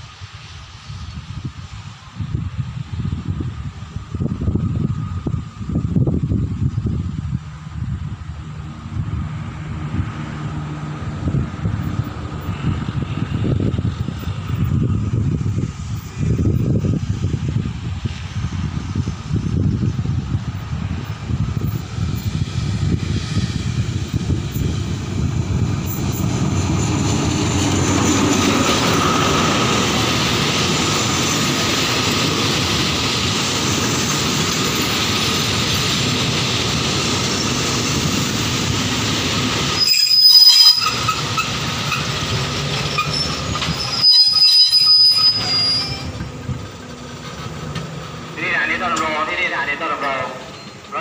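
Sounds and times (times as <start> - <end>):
diesel locomotive engine: 0.0 - 51.0
train wheels rumbling on rails: 0.0 - 51.0
high-pitched wheel squeals: 39.8 - 42.0, 42.9 - 46.3.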